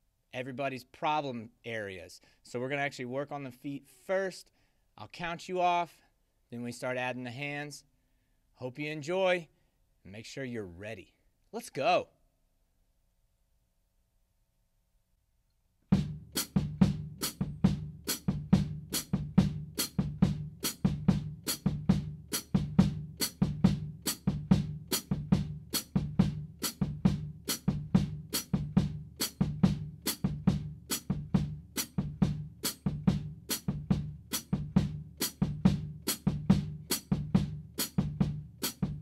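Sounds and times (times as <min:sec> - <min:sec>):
bass drum beats: 0:15.9 - 0:39.0.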